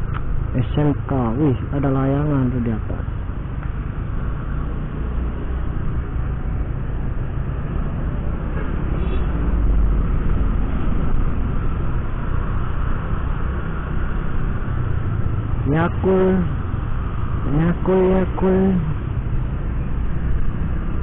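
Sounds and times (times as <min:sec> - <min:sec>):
scooter road noise rumble: 0:00.0 - 0:21.0.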